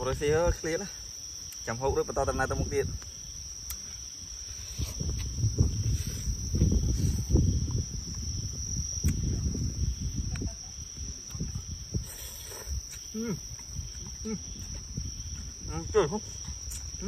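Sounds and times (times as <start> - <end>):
insects calling high-pitched: 0.0 - 17.0
low thumps and rumbles: 5.0 - 10.5.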